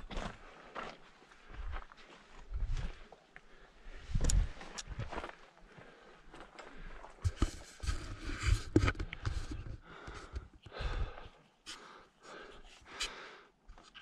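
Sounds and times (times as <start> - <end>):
footsteps crunching on loose rock: 4.1 - 10.4.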